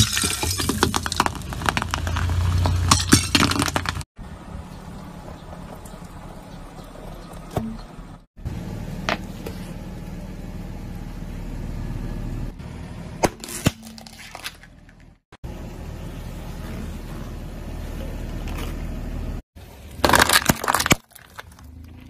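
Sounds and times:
objects cracking under tyre: 0.0s - 4.1s, 13.3s - 15.2s, 19.8s - 22.0s
car engine running low: 0.9s - 13.2s, 14.4s - 19.4s.

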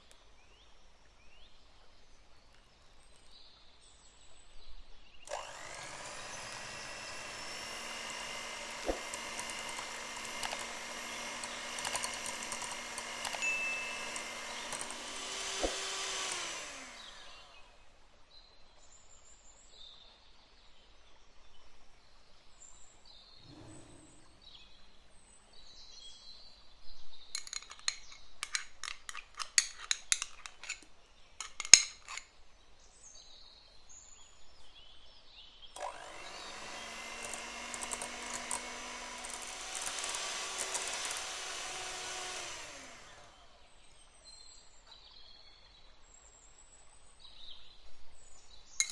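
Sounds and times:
electric hand mixer whirring: 5.3s - 17.9s, 23.4s - 24.4s, 35.8s - 43.7s
metal spoon scraping glass cup: 27.4s - 30.8s, 31.4s - 32.3s.

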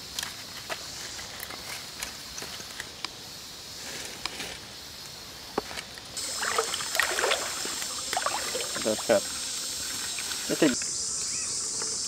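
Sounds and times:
high insect drone: 0.0s - 12.0s
stream rushing: 6.2s - 10.4s.

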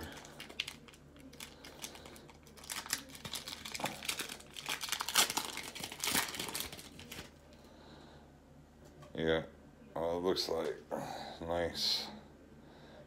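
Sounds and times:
foil wrapper tearing and crinkling: 0.0s - 7.3s.

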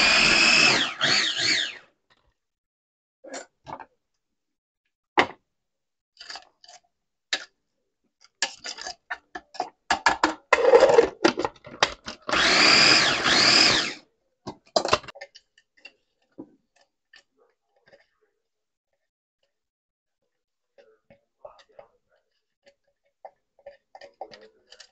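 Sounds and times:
electric chopper motor whirring: 0.0s - 1.8s, 12.3s - 14.0s
clicks and knocks of handling: 8.2s - 12.3s, 14.4s - 18.2s, 20.8s - 24.9s.

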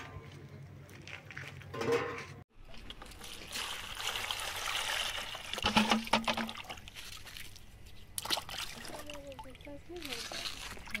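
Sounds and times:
water splashing as hands wash potatoes: 2.6s - 11.0s.

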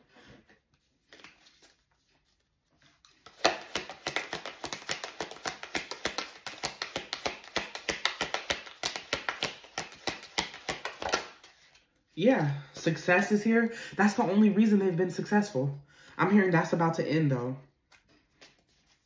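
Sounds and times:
faint card rustles: 0.3s - 3.4s, 17.9s - 19.0s
cards being shuffled: 0.7s - 11.9s, 17.9s - 19.0s.

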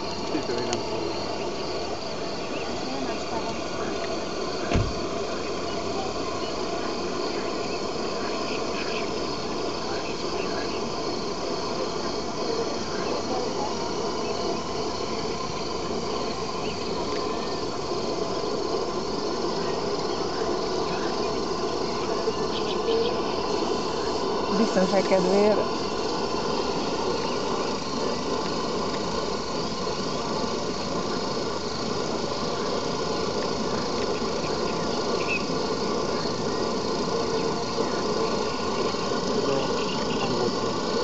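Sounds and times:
crickets chirping: 0.0s - 41.0s
dull thump: 4.7s - 5.0s.

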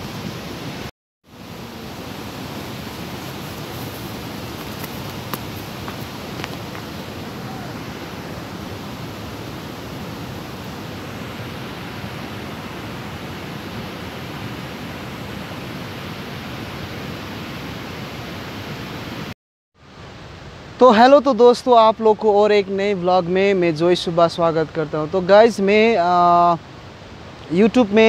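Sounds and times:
steady rushing noise: 0.0s - 14.9s.

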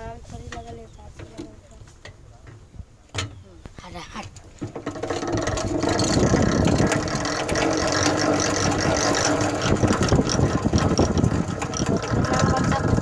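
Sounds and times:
honey extractor spinning: 4.6s - 13.0s.

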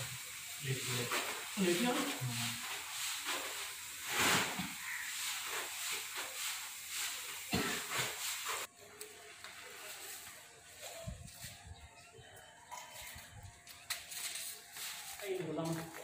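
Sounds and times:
grain pouring into sack: 0.6s - 8.7s.

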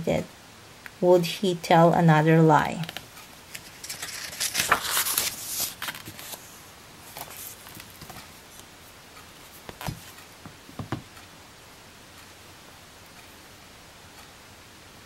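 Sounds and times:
book closing: 2.8s - 6.4s, 7.1s - 8.2s, 9.6s - 10.1s
book pages turning: 2.8s - 8.7s, 9.4s - 10.2s
paper rustling: 2.8s - 8.7s, 9.4s - 10.2s.

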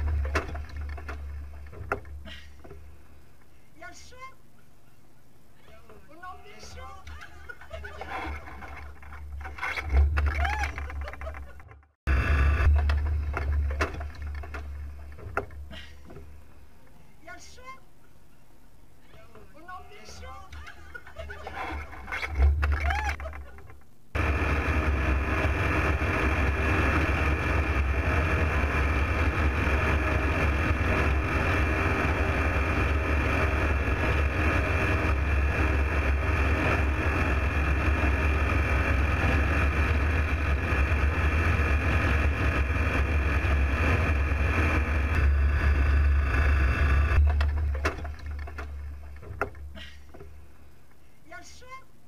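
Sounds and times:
light aeroplane engine drone: 12.1s - 17.1s, 24.2s - 50.6s
rushing air: 24.2s - 47.3s.

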